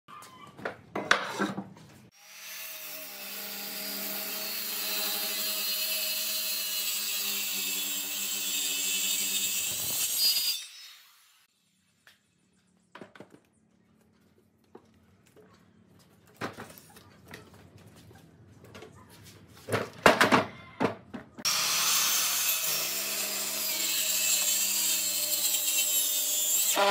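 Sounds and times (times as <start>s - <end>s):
circular saw cutting wood: 2.1s - 11.5s, 21.4s - 26.9s.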